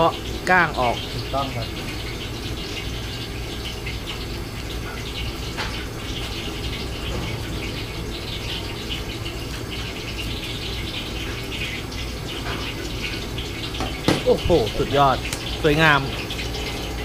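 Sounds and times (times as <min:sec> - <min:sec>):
kitchen background hiss: 0:00.0 - 0:17.0.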